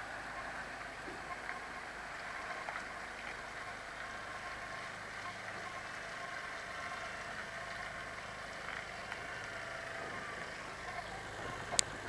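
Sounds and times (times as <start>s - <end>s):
low engine hum: 0.0s - 12.0s
tyres on wet tarmac: 0.0s - 12.0s.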